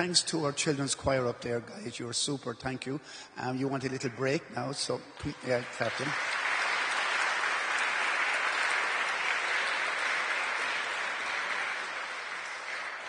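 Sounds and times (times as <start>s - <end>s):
congregation applauding: 5.2s - 13.0s.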